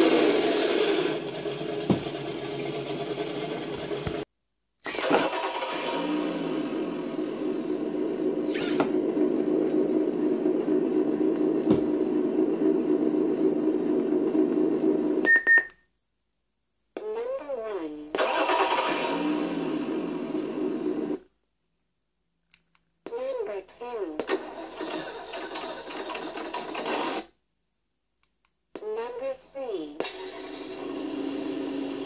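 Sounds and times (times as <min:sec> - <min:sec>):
simulated engine sound from speaker: 0:04.9 - 0:15.2
short electronic beeps: 0:15.2 - 0:15.8.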